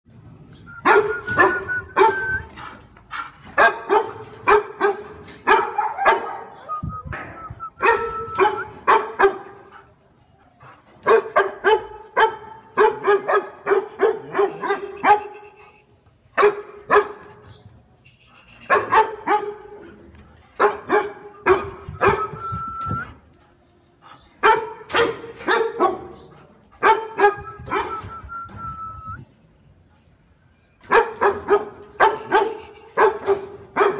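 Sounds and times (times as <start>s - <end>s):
dog whining: 0.7s - 2.7s
large dog barking: 0.8s - 2.3s, 3.1s - 6.6s, 7.8s - 9.9s, 11.0s - 15.4s, 16.4s - 17.4s, 18.7s - 19.8s, 20.6s - 22.3s, 24.4s - 28.0s, 30.9s - 33.9s.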